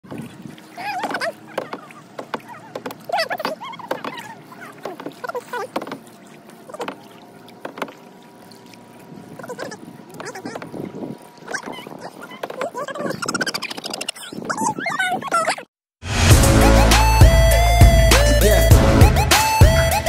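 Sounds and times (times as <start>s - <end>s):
paddle splashing in water: 0.0s - 13.8s.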